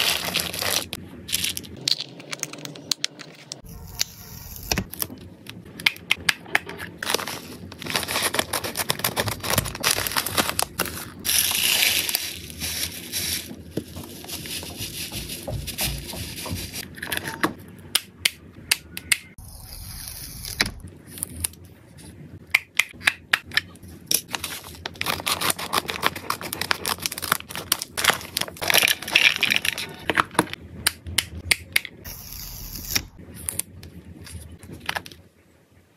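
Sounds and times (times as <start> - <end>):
paper crinkling and tearing: 0.0 - 5.6, 7.0 - 16.9, 24.2 - 30.4.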